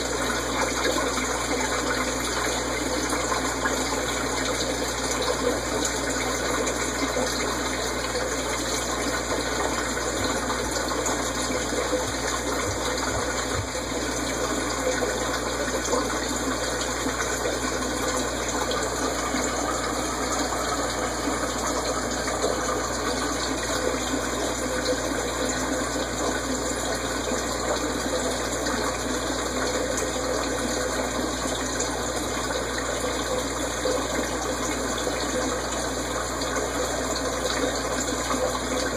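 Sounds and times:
aquarium water splashing: 0.0 - 38.9.

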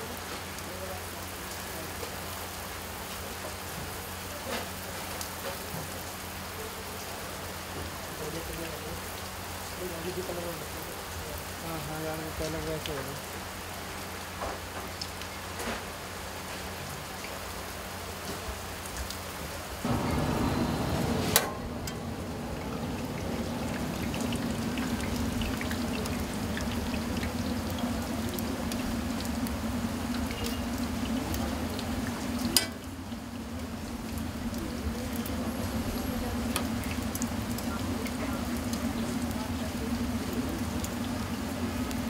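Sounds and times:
steady low hum: 19.9 - 42.0.

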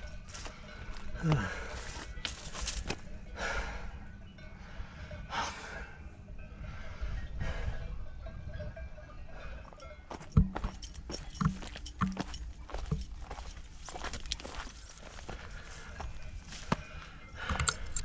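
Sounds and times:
person breathing hard: 0.4 - 2.1, 3.3 - 4.0, 4.6 - 8.0, 15.3 - 18.0
wind rumble on microphone: 3.9 - 18.0.

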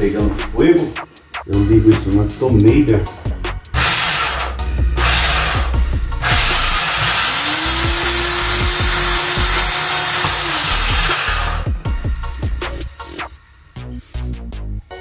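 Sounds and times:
electric drill motor whine: 3.8 - 11.7.

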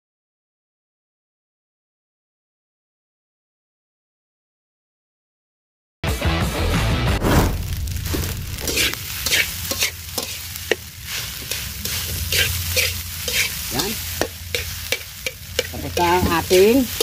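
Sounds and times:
metal spatula scraping a wok: 7.2 - 17.0.

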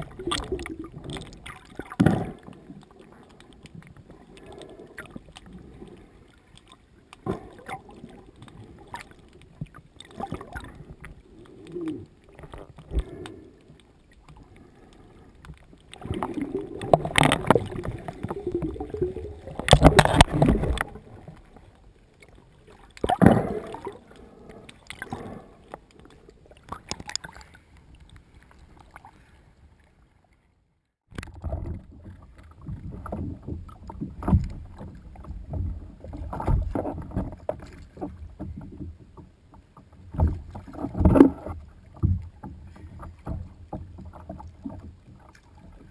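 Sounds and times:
underwater rushing water: 0.0 - 30.1, 31.1 - 45.9
water splashing and lapping: 0.0 - 30.5, 31.1 - 45.9.

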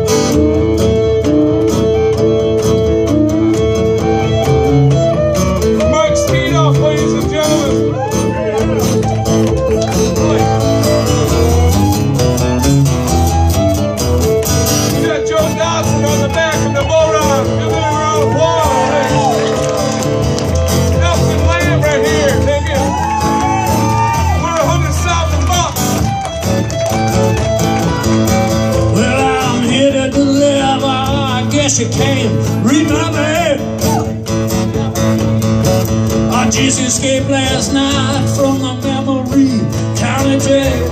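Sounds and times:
fiddle playing held notes: 0.0 - 29.7
acoustic guitars strumming: 0.0 - 40.9
wavering melody line: 0.3 - 14.4.

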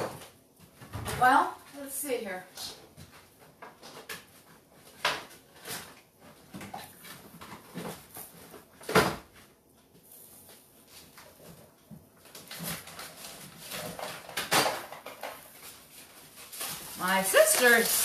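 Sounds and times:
knocks and clatters on countertop: 13.7 - 15.6.

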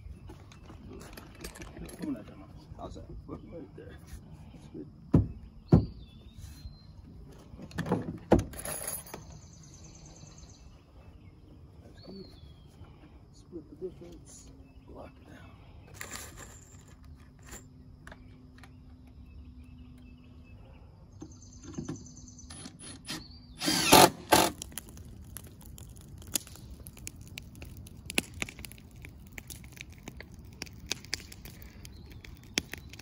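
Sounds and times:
cordless drill running: 22.6 - 24.6.

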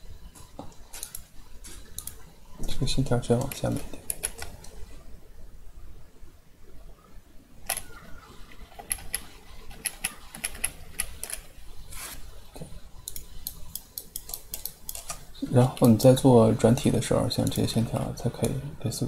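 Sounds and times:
keyboard and mouse clicks: 1.9 - 2.2, 3.4 - 4.8, 8.5 - 11.5, 13.0 - 15.2.

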